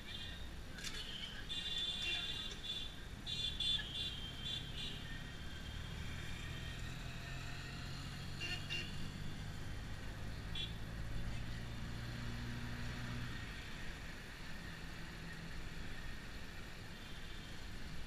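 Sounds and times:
road noise: 0.0 - 18.0
car engine hum: 3.2 - 17.0.

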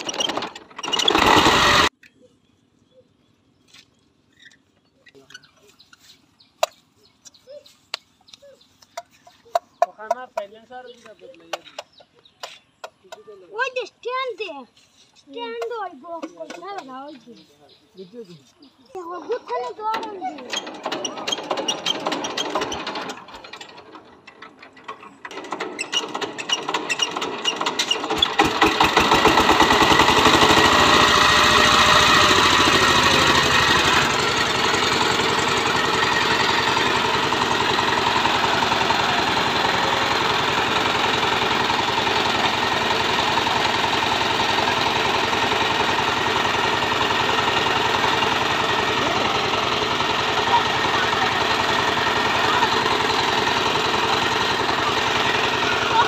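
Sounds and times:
diesel engine running: 0.0 - 2.0, 19.1 - 56.0.

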